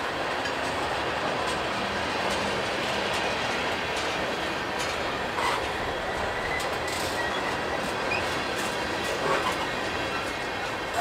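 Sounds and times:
train cars rumbling: 0.0 - 11.0
wheels clicking over rails: 0.2 - 11.0
faint high wheel squeal: 5.4 - 5.7, 6.3 - 8.4.

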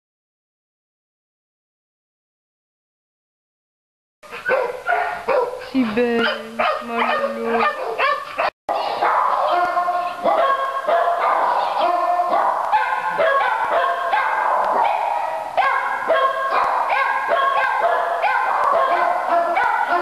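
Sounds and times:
dogs barking and yapping: 4.3 - 20.0.

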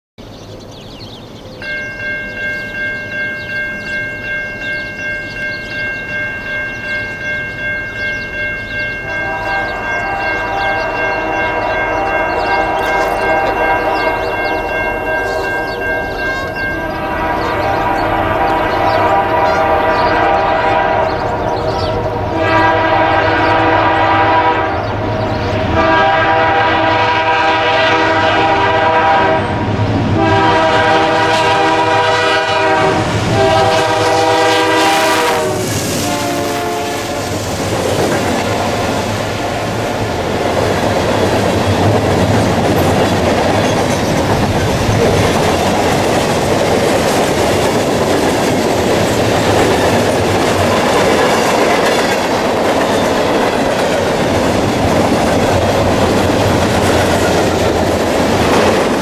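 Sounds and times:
crossing warning bell ringing: 1.3 - 29.2, 30.3 - 37.4, 38.0 - 59.0
train horn blasts: 9.0 - 37.5.

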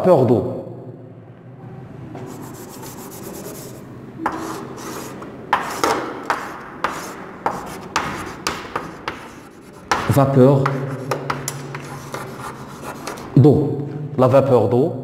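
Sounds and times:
chalk scraping on blackboard: 2.2 - 13.4.

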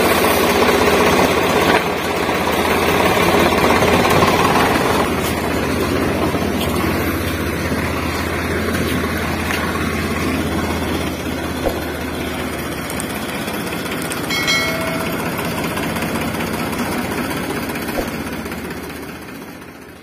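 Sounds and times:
toy excavator motor hum: 0.0 - 20.0
brief chime: 14.3 - 15.9.

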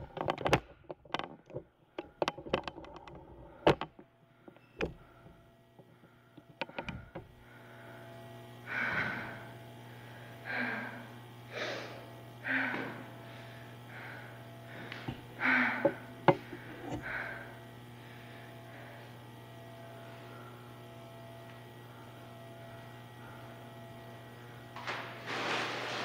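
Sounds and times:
steady electrical hum: 0.0 - 26.0
person breathing hard: 4.4 - 19.2.

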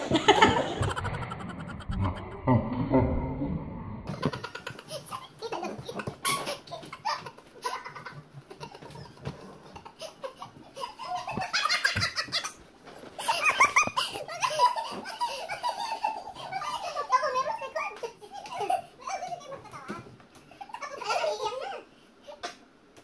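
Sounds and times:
women laughing: 0.0 - 2.7.

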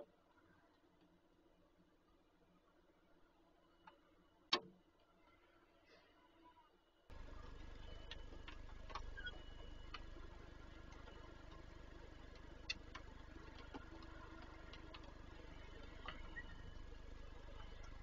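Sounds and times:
low electrical hum: 0.0 - 18.0
sharp clicks and ticks: 7.4 - 16.9.

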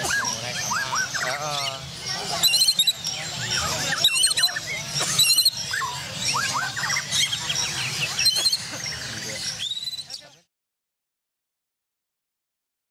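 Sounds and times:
crowd murmur: 0.0 - 10.4
birds singing trills and whistles: 0.0 - 10.5.

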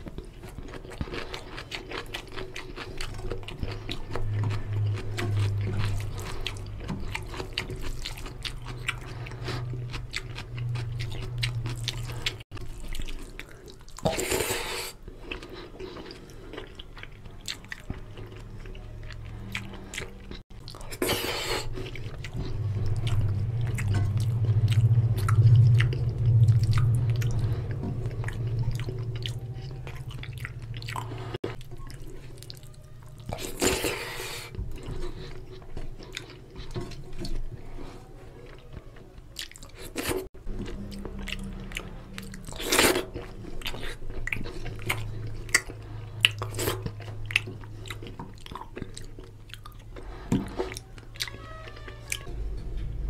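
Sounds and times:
man chewing wetly: 0.0 - 53.0.

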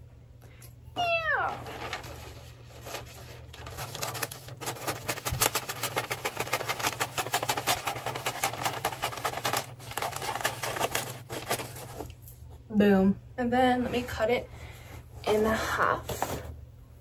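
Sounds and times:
wrapping paper crinkling: 1.0 - 12.4.

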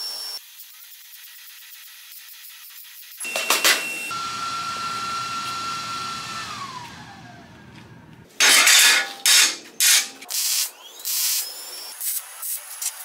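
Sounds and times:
power tool motor whining: 3.2 - 8.2
welding crackle: 9.3 - 13.0.

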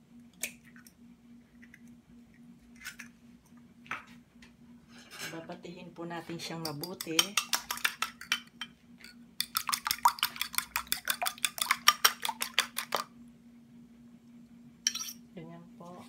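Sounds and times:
fork clinking against glass bowl: 14.9 - 15.2.

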